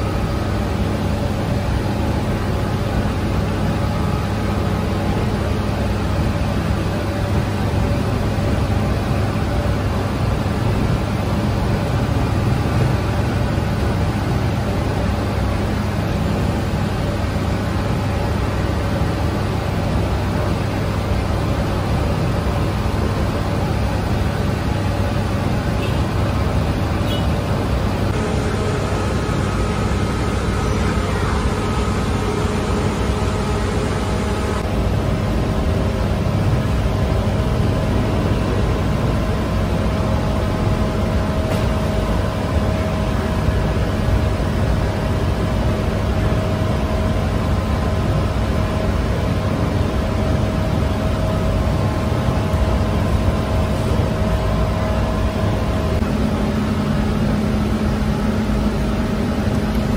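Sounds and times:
faint steady whine: 0.0s - 59.9s
machinery hum: 0.0s - 59.9s.

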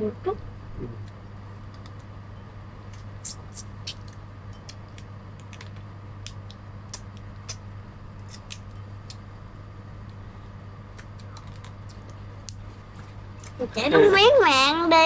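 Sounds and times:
low hum: 0.0s - 15.0s
sucking and lip-smacking: 2.9s - 9.2s, 10.9s - 12.8s
crab shell cracking: 2.9s - 9.3s, 10.9s - 12.7s.

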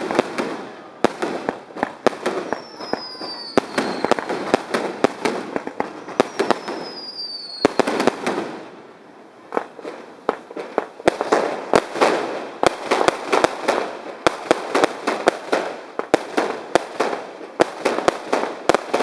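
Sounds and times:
fireworks bangs: 0.0s - 19.0s
fireworks crackling: 0.0s - 19.0s
falling whistles: 2.4s - 4.5s, 6.0s - 7.8s.

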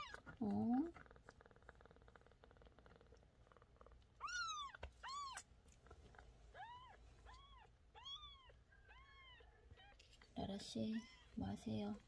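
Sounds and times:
kitten meowing: 4.2s - 5.5s, 6.5s - 10.0s.

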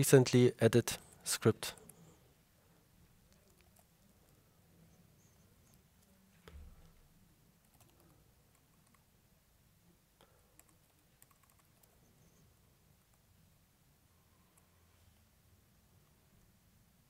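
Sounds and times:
soft keyboard typing: 3.2s - 4.4s, 7.6s - 9.2s, 10.3s - 13.3s.

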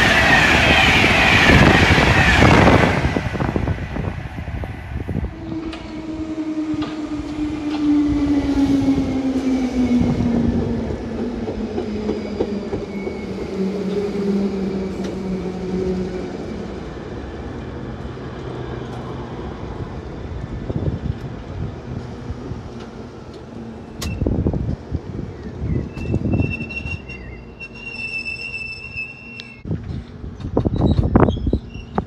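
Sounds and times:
train wheels clicking on rail joints: 20.3s - 32.0s.

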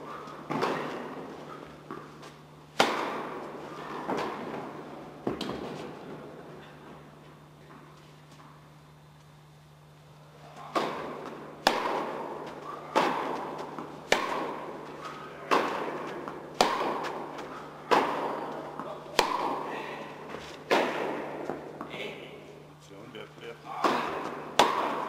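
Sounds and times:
tennis ball racket hits: 0.2s - 6.0s, 10.6s - 21.9s, 23.8s - 25.0s
tennis ball bouncing: 0.4s - 5.8s, 10.7s - 19.7s, 20.6s - 21.9s, 23.8s - 25.0s.

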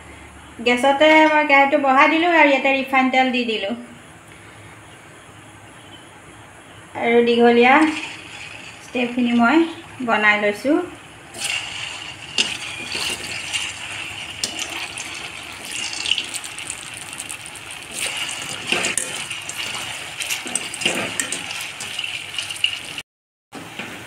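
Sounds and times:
dough sizzling in hot oil: 7.5s - 23.0s.

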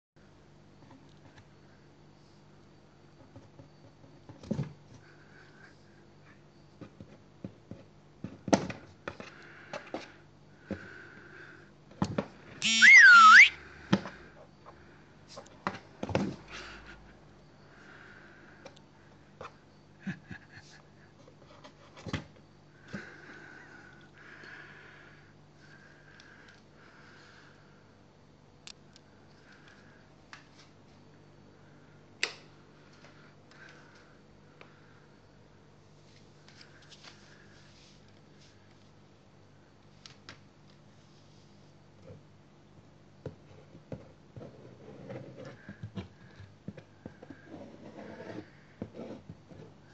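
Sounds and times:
high-pitched wavering squeak: 12.6s - 13.6s.

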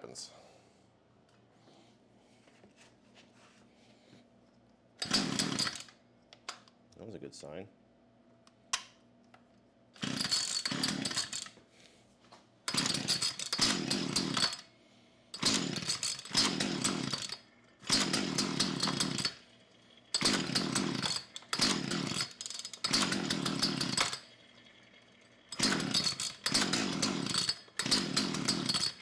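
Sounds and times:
chainsaw pull-start whir: 5.0s - 6.0s, 10.0s - 11.6s, 12.7s - 14.7s, 15.4s - 19.5s, 20.1s - 29.0s.

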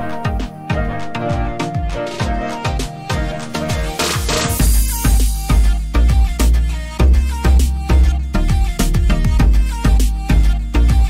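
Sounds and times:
music with heavy bass beat: 0.0s - 11.0s.

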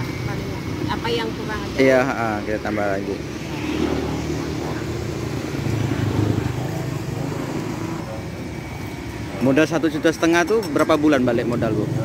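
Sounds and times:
vehicle engine passing: 0.0s - 12.0s.

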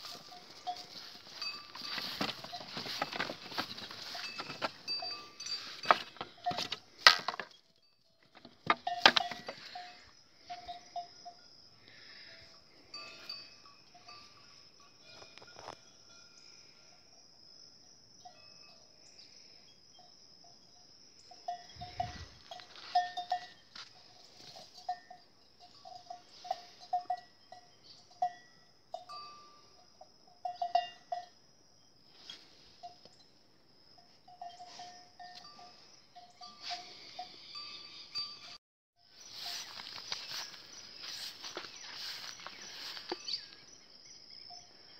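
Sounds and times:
goat bells clinking: 0.0s - 16.6s, 20.0s - 31.4s, 34.0s - 38.6s, 39.2s - 44.9s.

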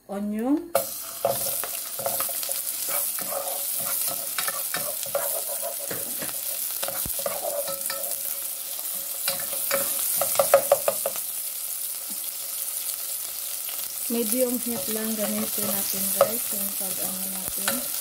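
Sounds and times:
onion sizzling in oil: 0.7s - 18.0s
spoon scraping a pan: 0.8s - 11.3s, 14.4s - 18.0s.

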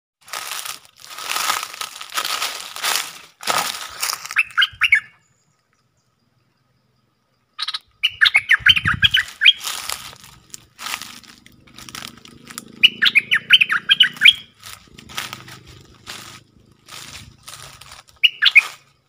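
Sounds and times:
leaves and branches rustling: 0.2s - 5.1s, 8.7s - 12.8s, 14.0s - 19.0s
bulbul chattering calls: 4.2s - 5.5s, 7.6s - 10.4s, 11.0s - 18.8s.

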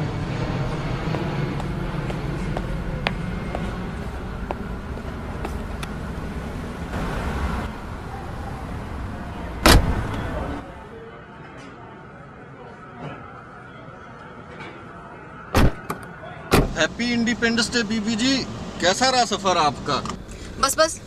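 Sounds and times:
traffic rumble: 0.0s - 11.0s, 15.6s - 21.0s
car boot lid slamming: 9.6s - 10.2s, 15.6s - 15.8s, 16.5s - 16.8s.

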